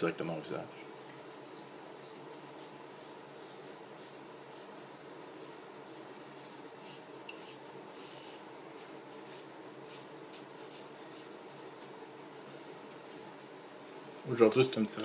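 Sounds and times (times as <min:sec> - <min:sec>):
razor scraping stubble: 0:01.4 - 0:13.0.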